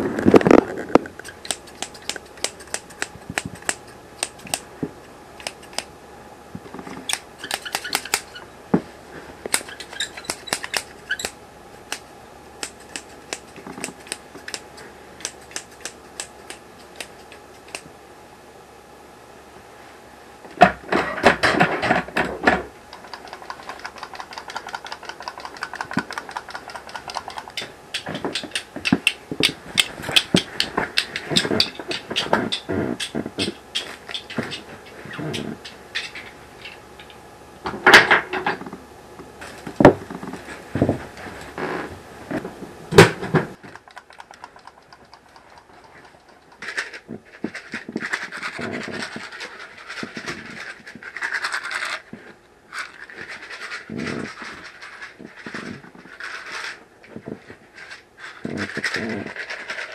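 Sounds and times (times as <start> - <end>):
sharp irregular clicks: 1.2 - 4.6, 5.4 - 5.9, 12.6 - 17.9, 22.9 - 34.5, 43.6 - 46.9.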